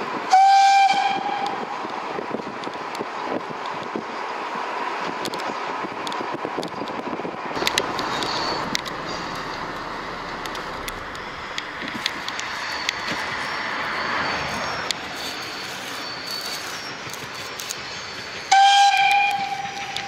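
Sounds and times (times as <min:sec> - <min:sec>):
steady background noise: 0:00.0 - 0:20.0
steam locomotive whistle: 0:00.3 - 0:01.8, 0:18.4 - 0:20.0.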